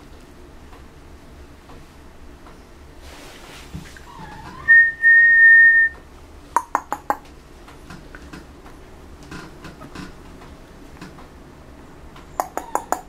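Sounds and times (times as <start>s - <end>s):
high whistled note: 4.7s - 6.0s.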